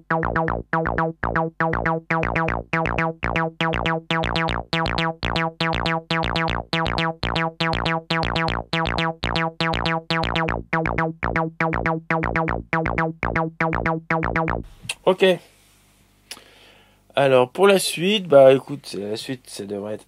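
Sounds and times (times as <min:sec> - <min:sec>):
repeating acid bass note: 0:00.0 - 0:14.9.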